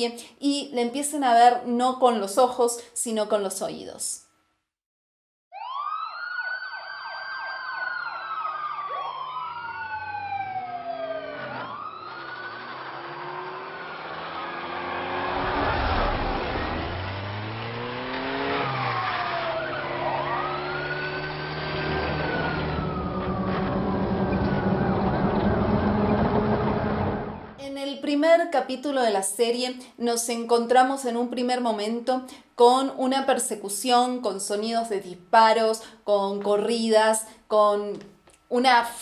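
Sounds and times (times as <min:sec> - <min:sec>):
police sirens wailing: 0:05.6 - 0:27.6
vehicle rushing past: 0:09.2 - 0:27.6
car engine and road noise: 0:09.6 - 0:27.6.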